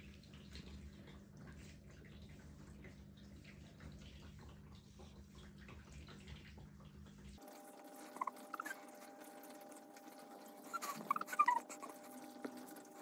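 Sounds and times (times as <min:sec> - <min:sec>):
brush scratching through fur: 0:07.5 - 0:13.0.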